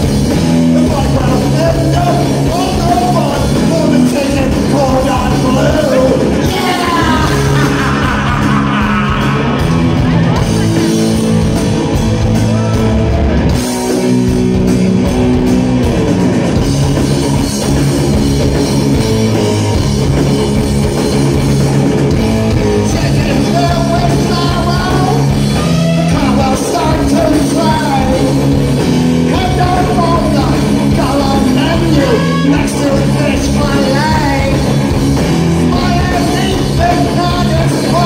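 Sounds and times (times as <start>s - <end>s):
bass guitar: 0.0s - 38.0s
distorted electric guitar: 0.0s - 38.0s
drum kit: 0.0s - 38.0s
person singing: 0.8s - 10.4s, 22.9s - 28.5s, 29.2s - 34.7s, 35.6s - 38.0s.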